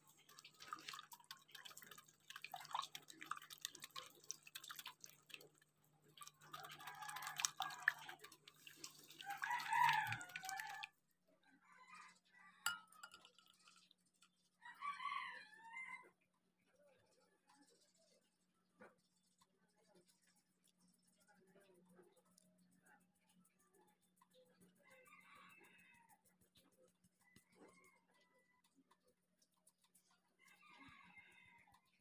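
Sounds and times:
wire whisk beating in glass bowl: 0.0 - 10.9, 12.6 - 14.3.

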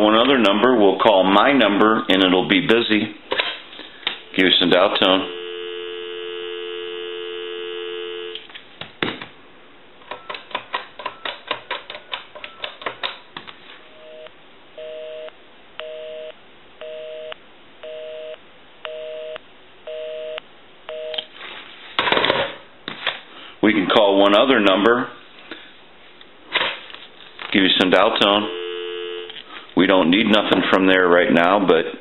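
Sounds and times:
telephone dial tone: 5.0 - 8.5, 28.4 - 29.4
busy signal beeps: 5.2 - 8.4, 14.0 - 21.2, 28.5 - 29.4
keypad clicks: 10.0 - 13.2.

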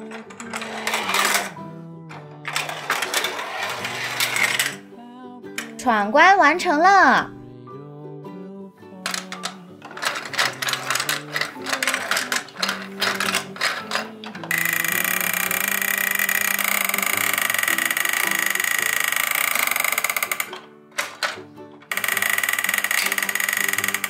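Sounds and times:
toy mechanical whir: 0.0 - 1.6, 2.4 - 4.8, 9.1 - 24.0
plastic toy clicking and rattling: 0.0 - 4.8, 5.6 - 5.8, 9.0 - 24.0
soft children's music: 0.0 - 24.0.

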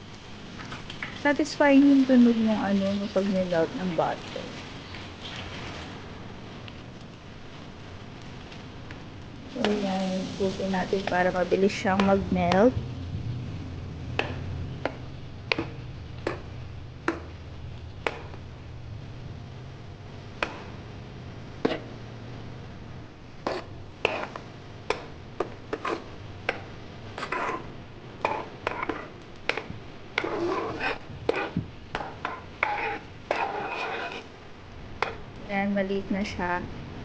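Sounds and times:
faint sizzle: 0.0 - 37.0
metal spoon scraping a pot: 23.4 - 24.4, 25.7 - 26.1, 27.2 - 29.6, 30.2 - 34.3.

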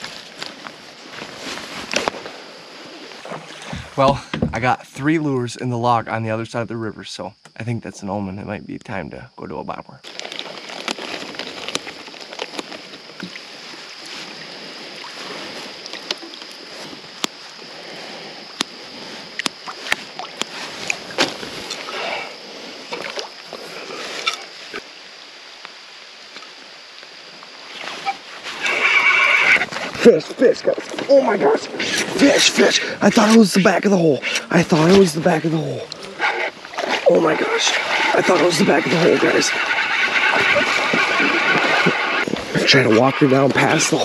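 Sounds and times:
faint water sounds: 0.0 - 7.0, 10.0 - 44.0
steady high drone: 30.0 - 44.0
fishing reel whirring on cast: 37.8 - 42.3.

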